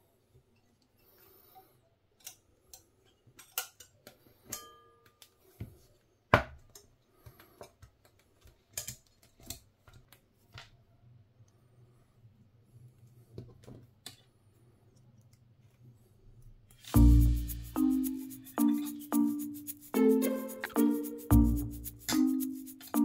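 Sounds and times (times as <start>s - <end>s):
metal wire clicking with tools: 2.2s - 5.4s, 7.6s - 10.1s.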